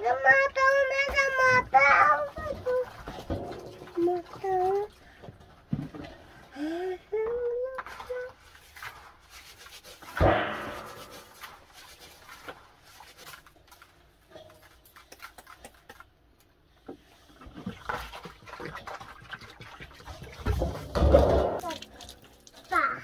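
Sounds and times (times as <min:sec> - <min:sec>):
hands swishing rice in water: 0:07.8 - 0:13.9, 0:17.3 - 0:20.9
thump: 0:10.1 - 0:11.2, 0:20.5 - 0:21.6
water pouring into basin: 0:17.4 - 0:22.8.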